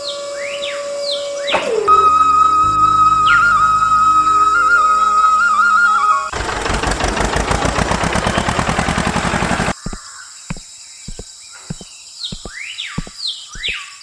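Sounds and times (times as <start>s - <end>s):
tractor engine chugging: 6.3s - 10.0s
birds chirping: 9.6s - 14.0s.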